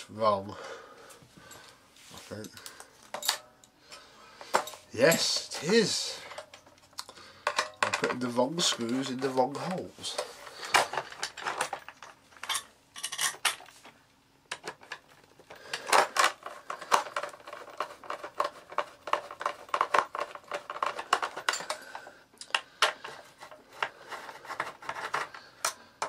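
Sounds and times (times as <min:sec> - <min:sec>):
screws clicking and rattling on plastic: 0:14.5 - 0:26.0.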